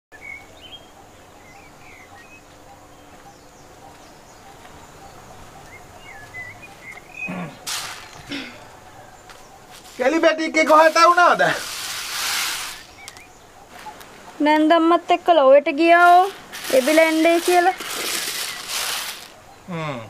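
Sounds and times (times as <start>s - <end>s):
birds chirping: 0.1s - 20.0s
rural outdoor background: 0.1s - 20.0s
rustling noises: 7.6s - 8.4s, 9.2s - 14.4s, 15.9s - 19.4s.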